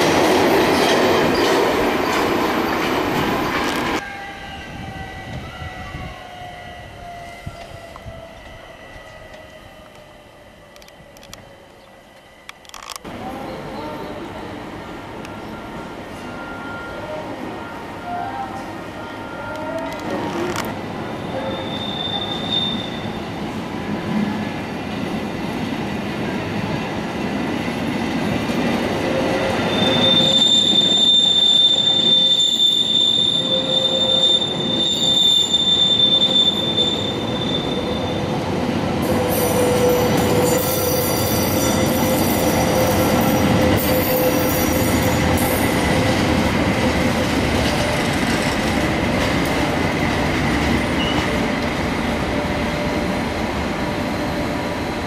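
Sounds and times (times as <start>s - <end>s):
train coaches rumbling: 0.0s - 55.0s
train wheels squealing: 21.2s - 23.4s, 29.2s - 46.2s, 50.8s - 51.6s.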